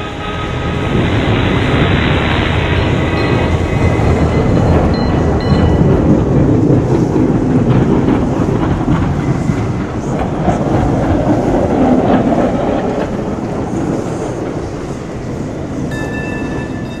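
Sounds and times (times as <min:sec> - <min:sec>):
steady high tones: 0:00.0 - 0:06.4, 0:15.8 - 0:17.0
low rumbling noise: 0:00.0 - 0:17.0.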